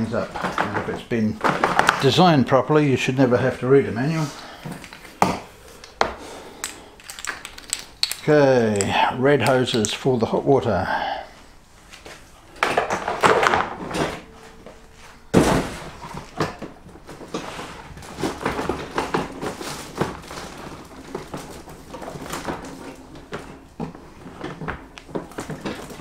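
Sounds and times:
hoses rustling and knocking: 11.9 - 26.0.

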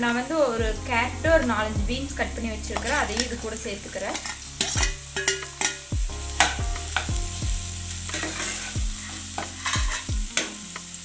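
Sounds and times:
vegetables sizzling in oil: 0.0 - 11.0
metal spatula scraping pan: 2.7 - 7.1, 8.0 - 10.7.

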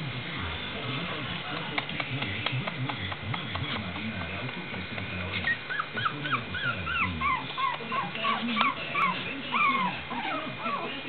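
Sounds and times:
puppy whimpering squeaks: 5.4 - 10.9.

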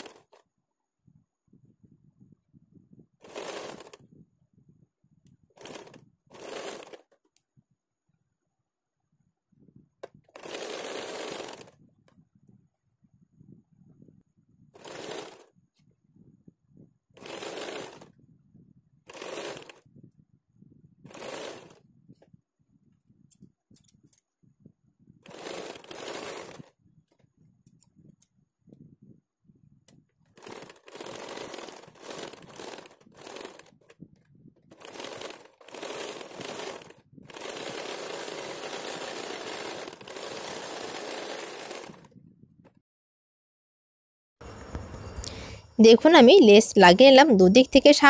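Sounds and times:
sewing machine stitching: 0.0 - 0.4, 3.2 - 4.1, 5.5 - 7.3, 10.0 - 11.8, 14.8 - 15.5, 17.2 - 18.2, 19.0 - 19.9, 21.0 - 21.8, 25.2 - 27.3, 30.3 - 42.2.

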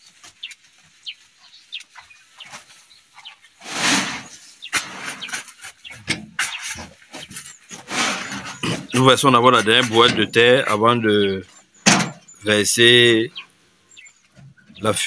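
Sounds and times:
soil sliding off wheelbarrow: 3.6 - 9.0
shovel scraping and knocking: 3.6 - 10.6.

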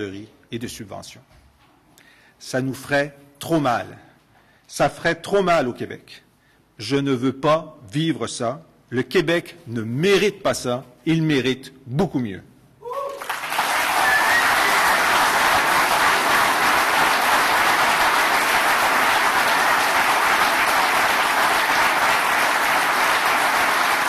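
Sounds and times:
crowd applauding: 13.1 - 24.0.

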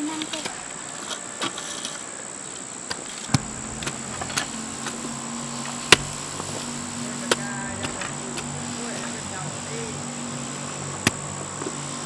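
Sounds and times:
crickets chirring: 0.0 - 12.0
low hum: 3.3 - 12.0.

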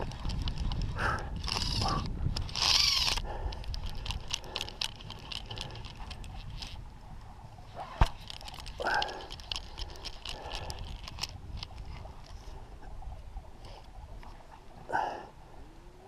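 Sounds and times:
fishing reel clicks: 0.2 - 6.8, 8.2 - 11.9.

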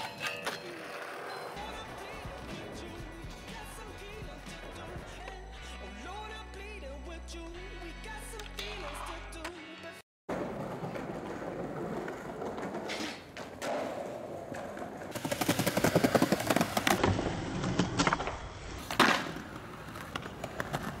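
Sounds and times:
skateboard clack on ground: 10.3 - 21.0
skateboard wheels rolling on stone: 10.3 - 21.0.

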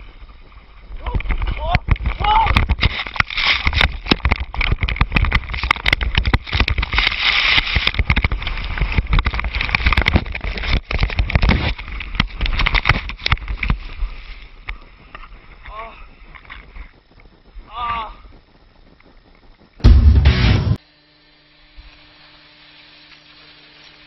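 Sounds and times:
snow and wind buffeting microphone: 0.0 - 19.9
knocks and crackles on camera: 1.0 - 17.7.

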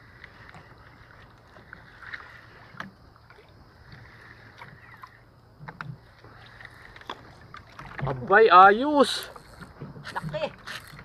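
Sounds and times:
sea: 0.0 - 11.0
wind: 0.0 - 11.0
fishing reel cranking: 9.0 - 11.0.

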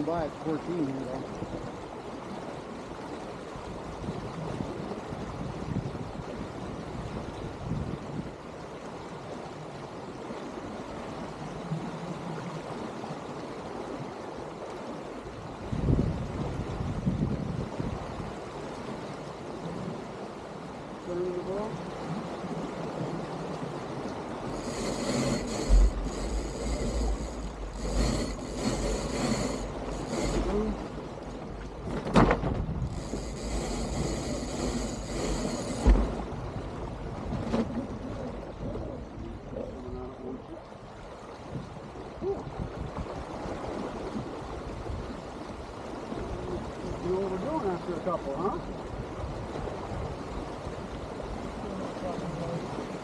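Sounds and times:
water rushing along boat hull: 0.0 - 53.0
wind buffeting microphone: 1.3 - 8.4, 15.0 - 20.7, 21.6 - 47.7.

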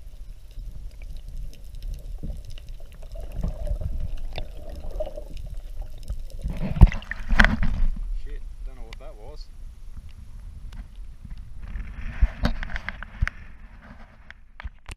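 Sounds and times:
faint ticks: 0.0 - 6.5
muffled underwater water sloshing: 0.0 - 8.2.

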